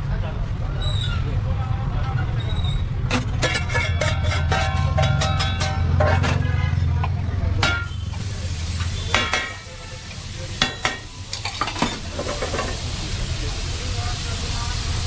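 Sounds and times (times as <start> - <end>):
spatula scraping metal pan: 3.1 - 6.4
water sizzling in hot pan: 7.8 - 15.0.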